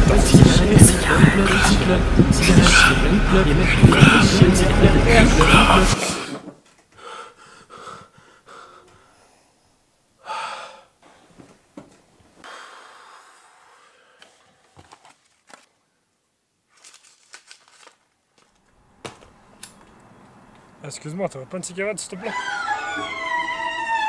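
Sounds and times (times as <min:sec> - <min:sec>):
man breathing heavily: 0:00.9 - 0:09.6, 0:10.2 - 0:11.4, 0:12.4 - 0:14.8.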